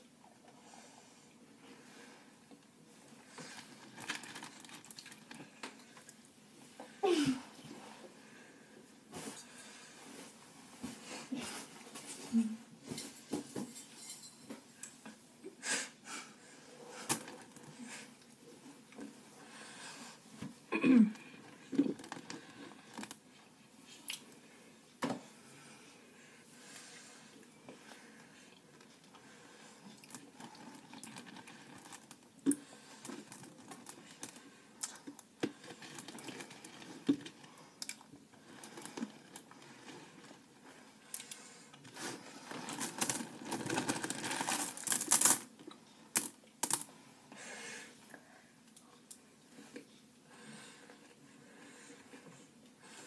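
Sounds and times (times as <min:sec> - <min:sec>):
rustling and scraping in plastic tub: 0:41.8 - 0:45.3.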